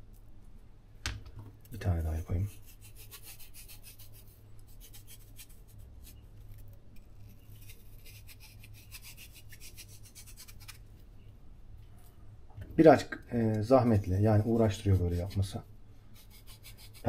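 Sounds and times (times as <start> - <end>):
squash flesh scraped by hand: 2.4 - 10.8.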